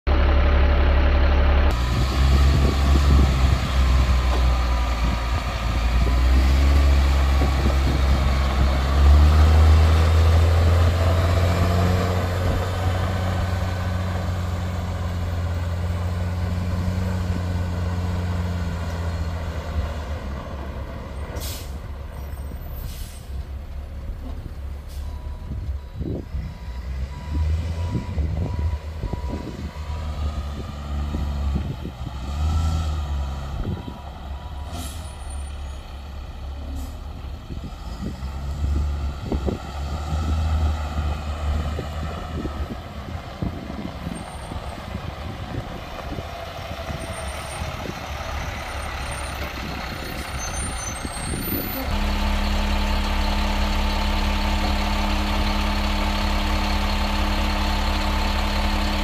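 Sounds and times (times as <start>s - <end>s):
truck diesel engine running: 0.1s - 59.0s
short air hisses: 21.4s - 21.8s, 22.8s - 23.4s.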